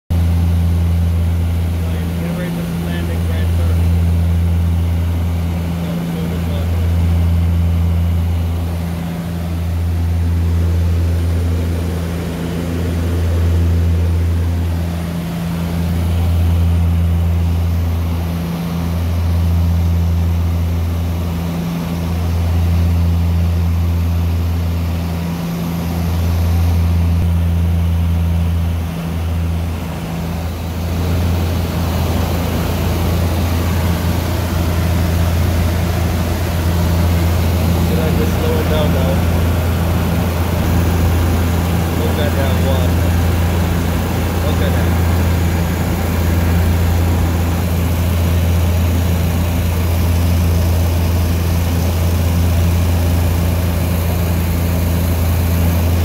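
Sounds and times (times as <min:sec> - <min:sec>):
propeller aircraft engines droning: 0:00.1 - 0:56.0.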